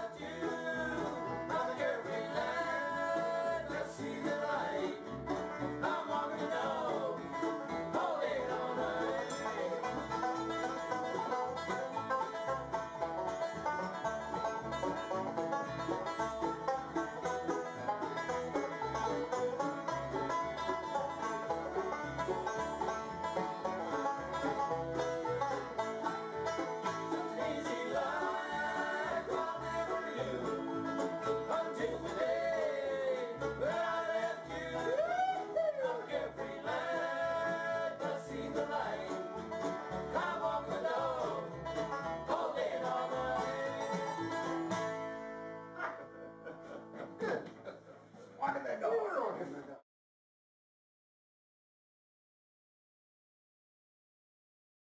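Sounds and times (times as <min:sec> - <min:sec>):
voices singing: 0:00.0 - 0:10.4, 0:26.8 - 0:44.5
bluegrass band playing: 0:00.0 - 0:48.5.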